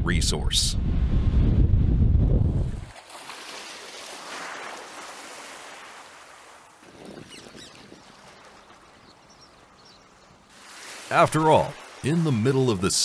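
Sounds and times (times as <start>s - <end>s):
wind buffeting microphone: 0.0s - 2.9s, 6.8s - 10.0s
open-air ambience hiss: 8.4s - 13.0s.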